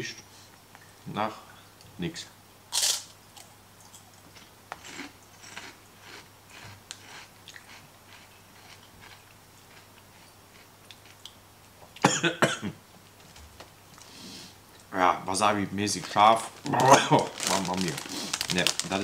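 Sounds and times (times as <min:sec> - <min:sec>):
person chewing crunchy chip: 0:02.7 - 0:11.3, 0:16.7 - 0:19.0
foil bag crinkling: 0:15.9 - 0:19.0.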